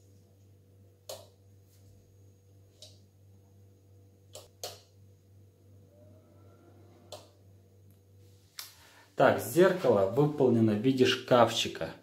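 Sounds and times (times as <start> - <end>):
faint low hum: 0.0 - 12.0
light switch clicking: 4.3 - 4.9, 7.1 - 7.3.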